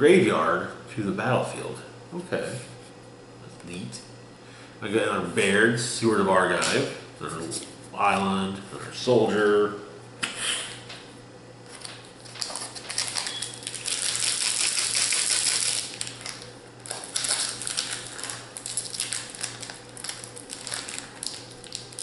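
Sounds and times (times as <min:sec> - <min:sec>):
wrapper crinkling and tearing: 0:11.7 - 0:22.0.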